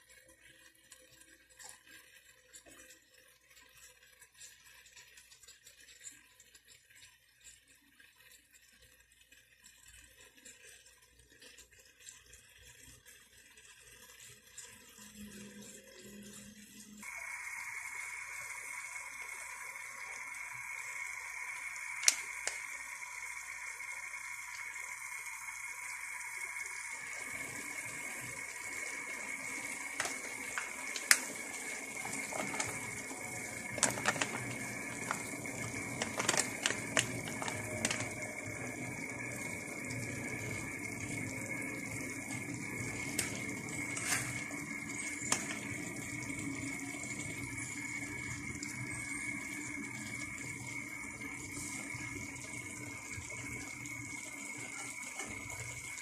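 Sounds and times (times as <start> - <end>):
food sizzling in a wok: 17.0 - 56.0.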